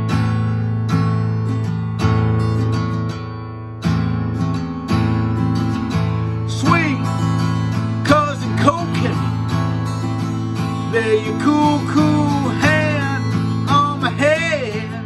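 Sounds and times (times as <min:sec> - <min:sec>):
acoustic guitar strumming: 0:00.0 - 0:15.0
man singing: 0:06.3 - 0:15.0.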